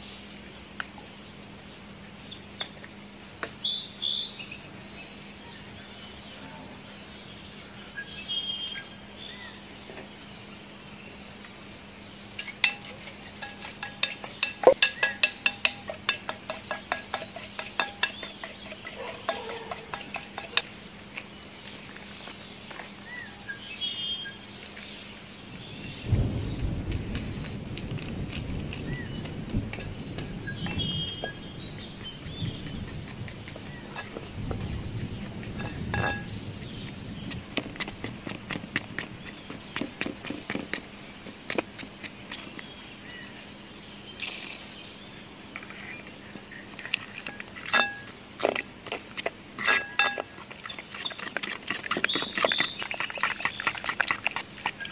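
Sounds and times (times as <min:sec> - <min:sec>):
birds chirping: 0:00.0 - 0:54.9
sharp clicks and knocks: 0:12.4 - 0:21.3, 0:26.7 - 0:42.7
low rumbling noise: 0:25.4 - 0:43.6.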